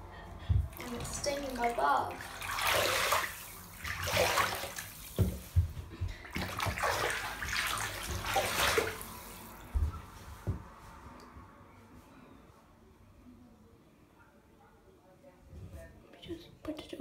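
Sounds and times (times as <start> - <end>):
bath water sloshing: 0.4 - 10.2.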